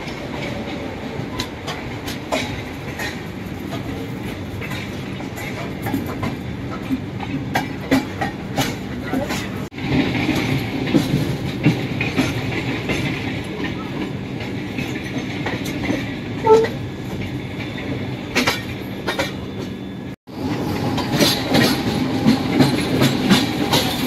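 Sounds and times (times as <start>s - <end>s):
wheels clattering over rail joints: 0.0s - 19.9s
electric train running: 7.5s - 24.0s.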